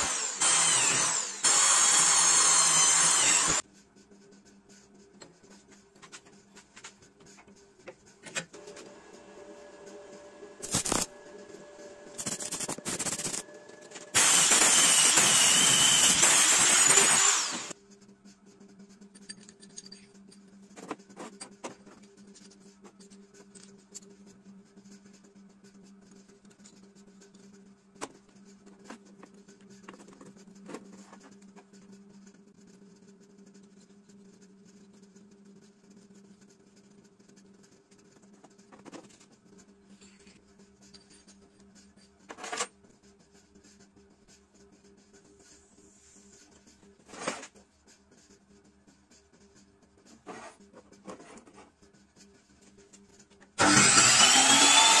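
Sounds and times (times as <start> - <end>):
arc welding crackle: 10.6 - 11.2.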